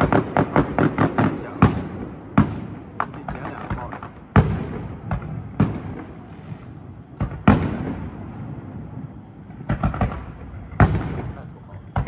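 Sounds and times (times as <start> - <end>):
smaller firework pops: 0.0 - 8.3, 9.5 - 12.0
firework shells booming: 0.0 - 12.0.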